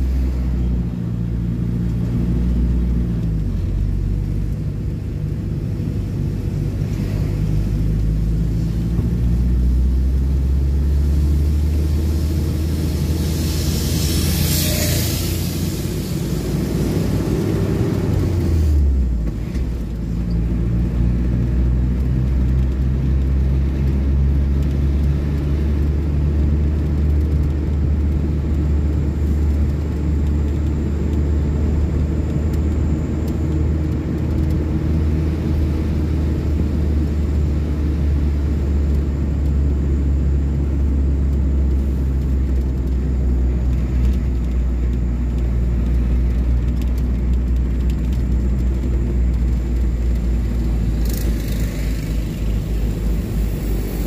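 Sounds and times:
car interior engine and road rumble: 0.0 - 54.0
high hiss: 12.9 - 16.4.

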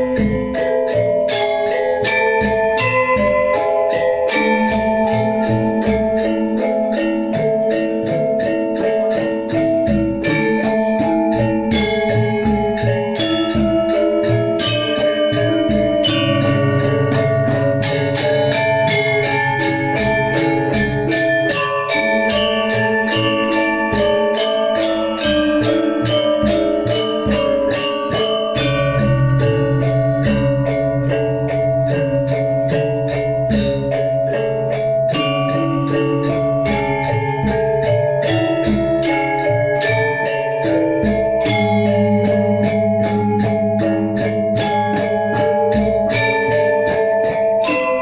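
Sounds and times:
metallophones ringing: 0.0 - 48.0
deep held gong tone: 16.0 - 20.8.

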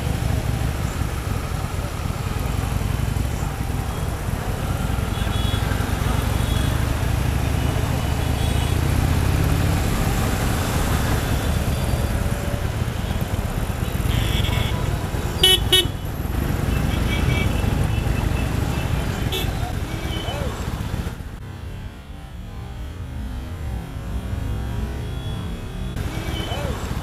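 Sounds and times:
high-pitched traffic sounds: 0.0 - 27.0
motorcycle engine rumble: 0.0 - 27.0.

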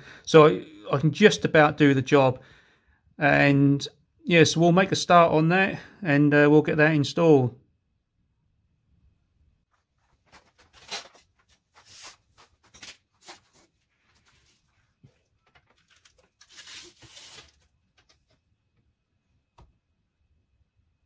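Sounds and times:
hands rustling and scraping parts: 9.8 - 18.4.

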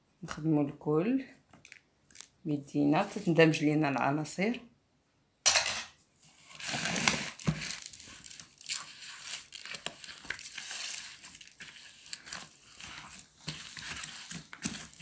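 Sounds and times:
hand squishing sticky paste: 7.7 - 15.0.

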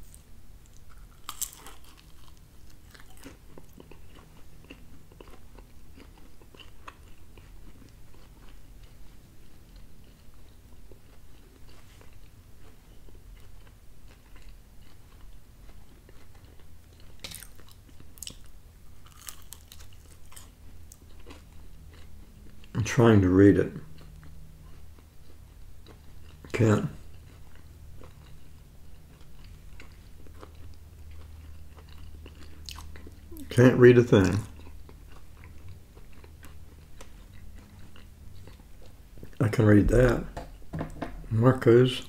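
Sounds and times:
crisp pizza bites: 0.0 - 9.0, 10.8 - 22.7
person chewing: 0.0 - 22.8, 23.7 - 33.6, 34.2 - 39.4.

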